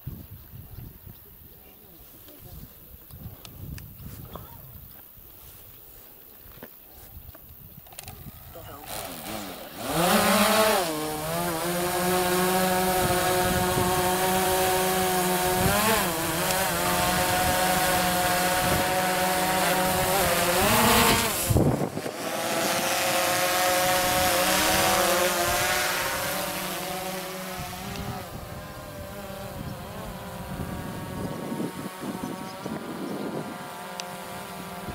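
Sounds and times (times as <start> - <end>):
quadcopter propellers whining: 7.9 - 34.9.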